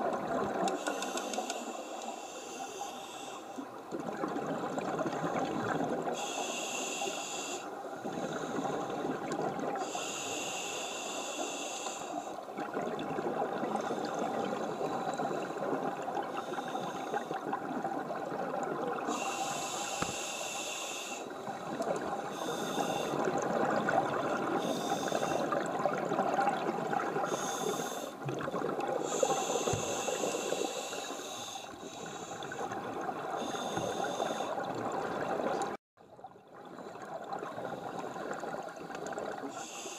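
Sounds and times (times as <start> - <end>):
regulator breathing hiss: 0.8 - 3.6, 6.2 - 8.9, 9.8 - 12.4, 19.1 - 21.4, 22.3 - 23.3, 24.6 - 25.5, 27.3 - 28.2, 29.0 - 32.7, 33.4 - 34.6, 39.5 - 39.9.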